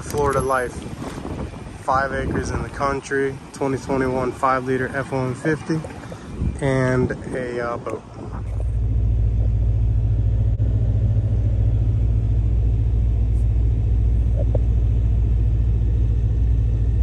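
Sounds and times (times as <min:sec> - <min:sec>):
low engine rumble inside vehicle: 0:05.7 - 0:17.0.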